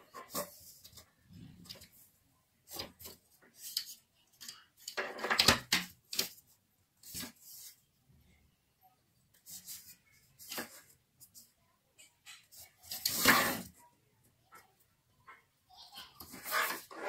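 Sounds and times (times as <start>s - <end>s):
pencil strokes on paper: 9.3s - 11.6s
plastic ruler sliding on paper: 16.3s - 17.0s.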